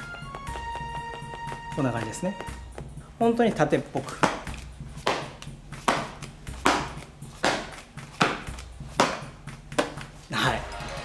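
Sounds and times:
leather glove slapping shut: 4.0s - 10.2s.

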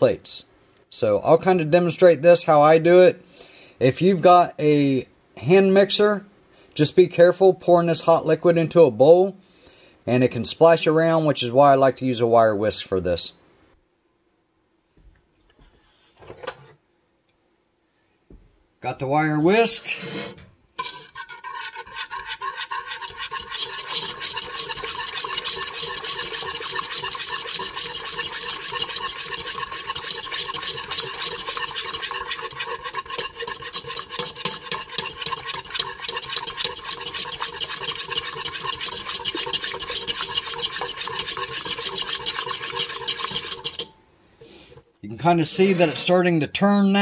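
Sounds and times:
wire whisk scraping a pot: 19.8s - 44.0s, 44.7s - 46.3s.

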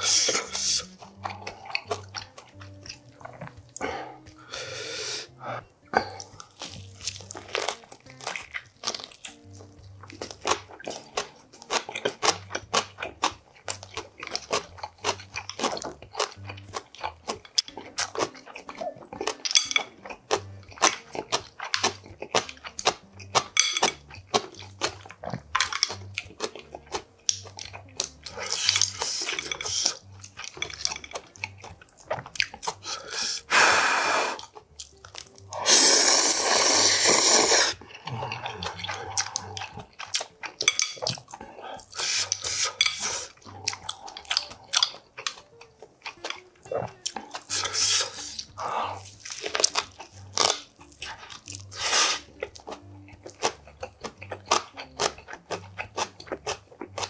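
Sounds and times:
wet chewing: 0.0s - 57.0s
noodle slurps: 35.5s - 39.8s, 51.7s - 52.3s.

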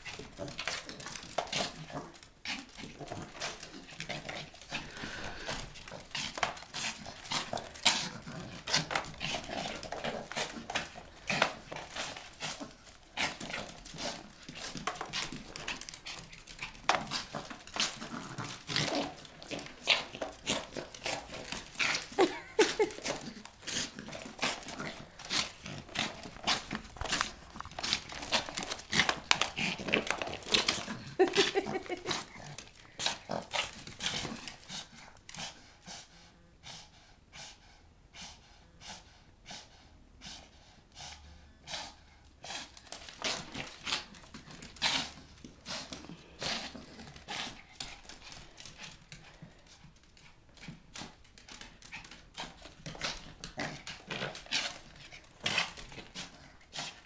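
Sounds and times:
dog growling: 0.0s - 34.8s, 51.8s - 57.0s
claws and bristles on hardwood floor: 0.0s - 35.6s, 41.9s - 57.0s.

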